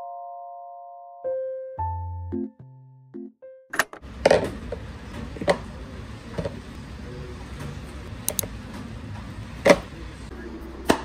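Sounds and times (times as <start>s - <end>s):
steady low hum: 4.0s - 11.0s.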